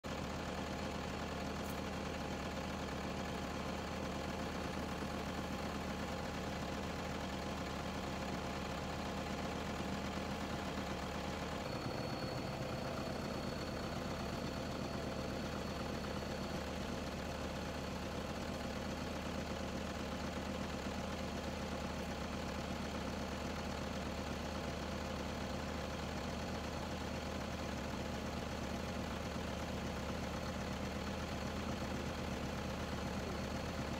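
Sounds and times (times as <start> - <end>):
vehicle engine idling: 0.0 - 33.9
faint high whine: 10.8 - 17.3.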